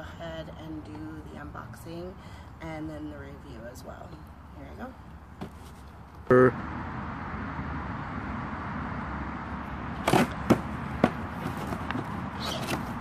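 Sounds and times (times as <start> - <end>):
cardboard snapping and scraping: 10.0 - 13.0.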